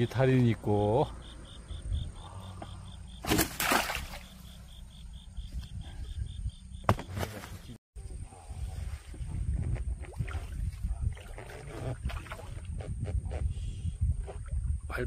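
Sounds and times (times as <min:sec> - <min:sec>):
cricket chirping: 0:00.0 - 0:08.6
water splashing: 0:03.2 - 0:04.6.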